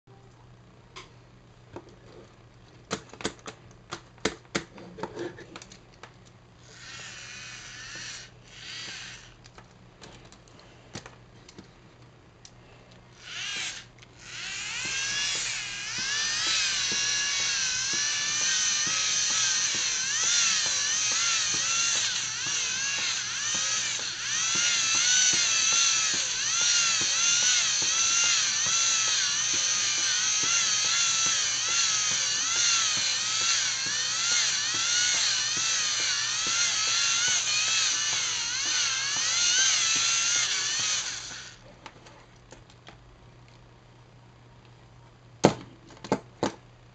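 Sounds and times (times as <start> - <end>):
small electric motor whining: 6.6 - 9.6, 13.1 - 41.6.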